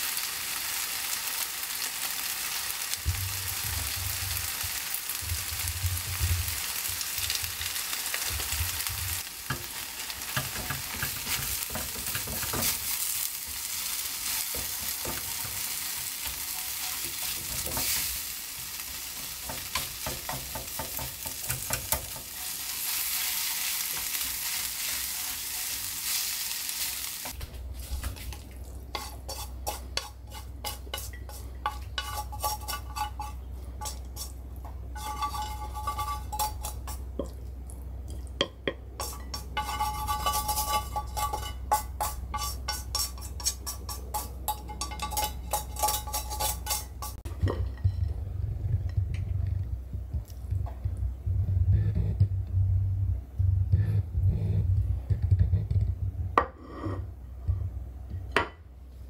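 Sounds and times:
noodles sizzling in frying pan: 0.0 - 37.3, 39.0 - 47.3
chopsticks clicking and scraping pan: 10.3 - 18.2, 19.2 - 26.4, 28.0 - 37.4, 38.4 - 47.9.

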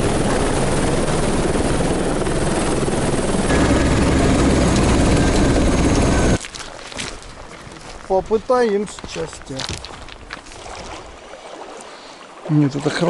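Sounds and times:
helicopter turbine and rotor: 0.0 - 6.4.

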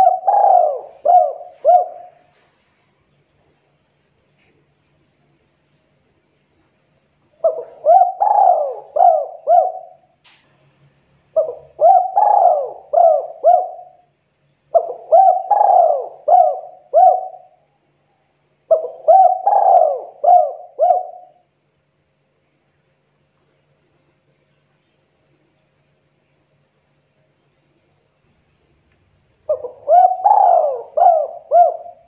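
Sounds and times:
dove cooing: 0.0 - 2.4, 7.4 - 10.1, 11.3 - 14.1, 14.7 - 17.6, 18.7 - 21.4, 29.4 - 32.0.

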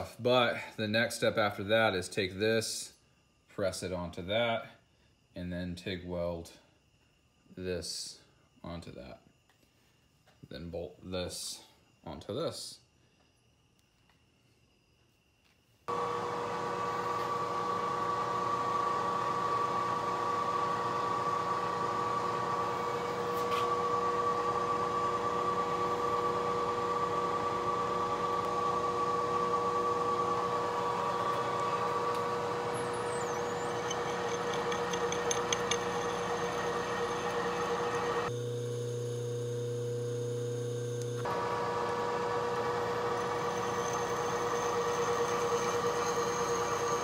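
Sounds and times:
drill bit cutting steel: 15.9 - 47.0
milling machine spindle running: 15.9 - 47.0.

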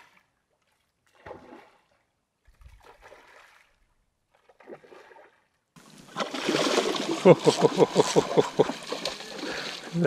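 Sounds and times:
fish splashing at water surface: 6.1 - 9.9.

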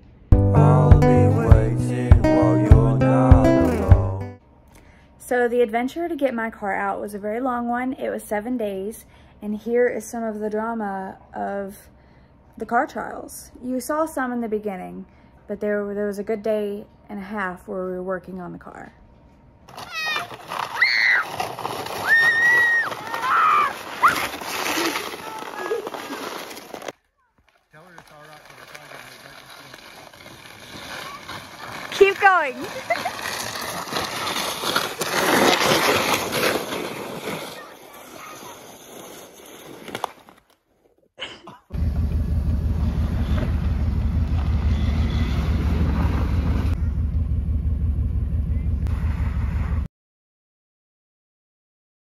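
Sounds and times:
basket scraping on packed snow: 19.7 - 27.0, 27.8 - 40.4, 44.6 - 46.8
girl squealing and shouting: 19.8 - 21.3, 22.0 - 24.3
car engine running hard: 41.8 - 48.8.

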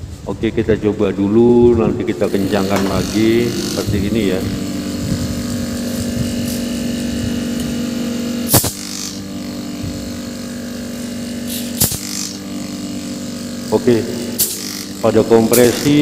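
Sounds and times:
compressor humming: 0.0 - 16.0
sharp click: 2.6 - 4.0, 8.5 - 9.2, 11.5 - 12.4.

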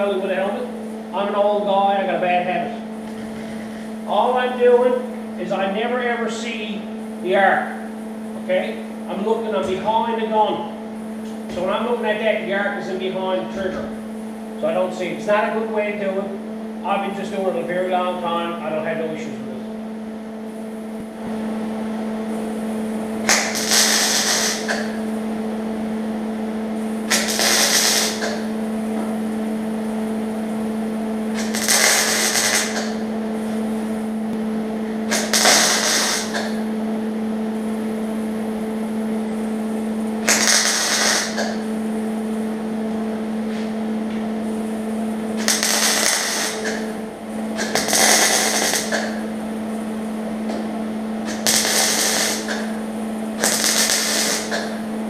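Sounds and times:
steady hum: 0.0 - 55.0
welder crackling bursts: 23.2 - 25.1, 26.9 - 28.7, 31.3 - 33.5, 35.1 - 36.7, 40.2 - 41.8, 45.3 - 49.4, 51.2 - 54.9.

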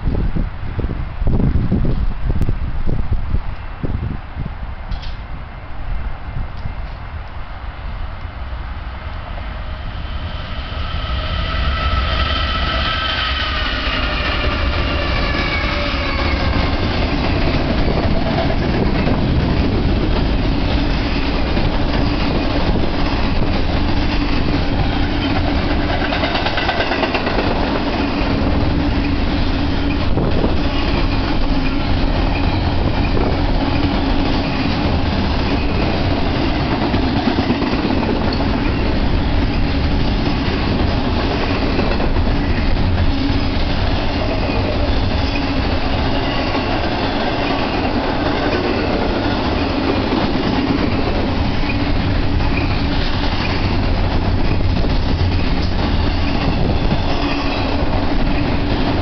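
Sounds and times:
freight train rumble: 0.0 - 59.0
train horn chord: 11.3 - 16.9
wheel clatter on rails: 16.4 - 59.0.

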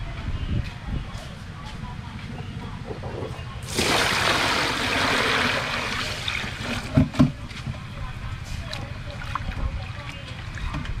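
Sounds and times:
water pouring into plastic basin: 3.7 - 7.0.

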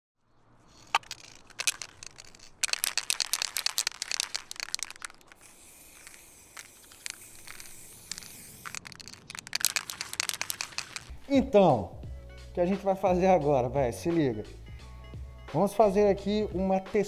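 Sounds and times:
quick sharp clicks and rattles: 0.7 - 11.2
steady high hiss: 0.7 - 11.2.

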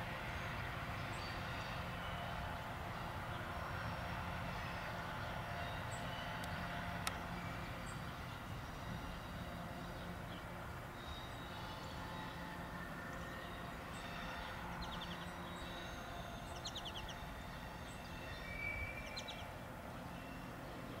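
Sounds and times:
outdoor background noise: 0.0 - 21.0
passenger train hum: 0.0 - 21.0
songbirds chirping: 0.1 - 21.0.

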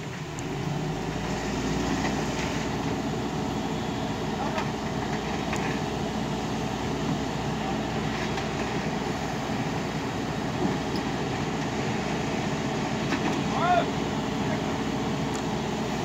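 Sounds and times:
excavator diesel engine and hydraulics: 0.0 - 16.0.

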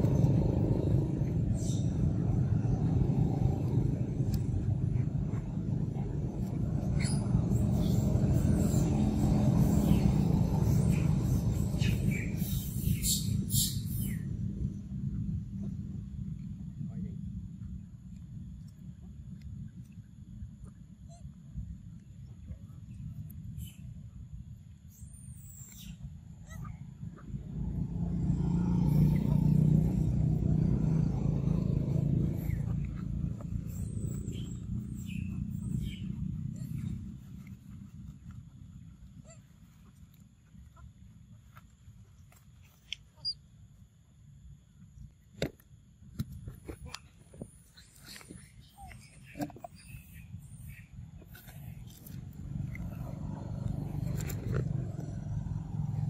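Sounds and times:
vehicle engine drone: 0.0 - 20.8, 21.6 - 43.9, 46.2 - 56.0
low steady rumble: 0.0 - 56.0
faint high bird chirps: 24.9 - 26.7, 32.4 - 37.0.

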